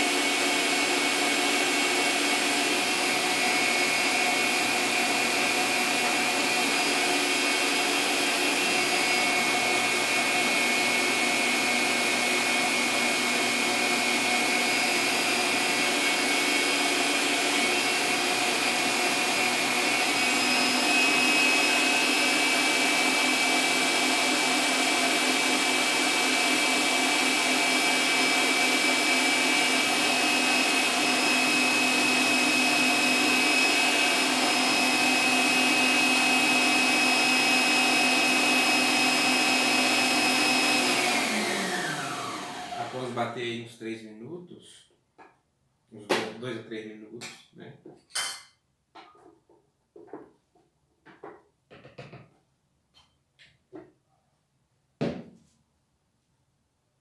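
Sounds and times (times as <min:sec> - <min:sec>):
stand mixer motor whine: 0:00.0 - 0:43.2.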